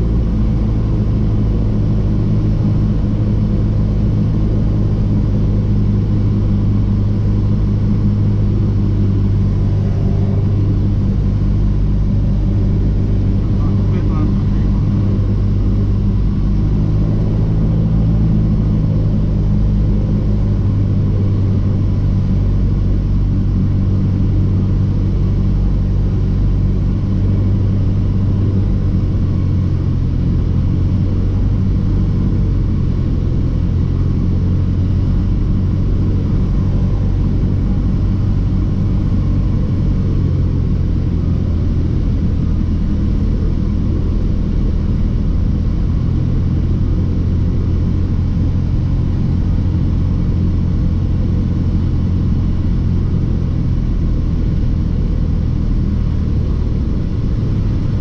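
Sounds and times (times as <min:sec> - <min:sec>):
airplane engine and propeller droning: 0:00.0 - 0:58.0.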